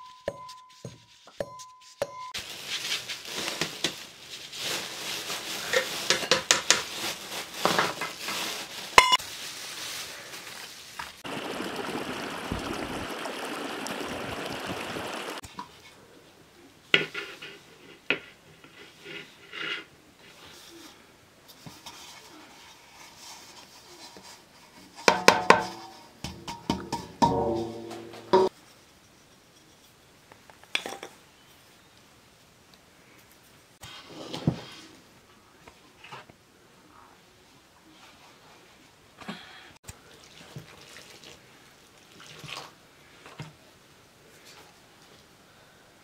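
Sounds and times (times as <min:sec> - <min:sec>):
soft rustle: 0:00.0 - 0:11.2, 0:15.3 - 0:25.1, 0:31.4 - 0:39.1
metal sieve and tray clinking: 0:25.1 - 0:28.5.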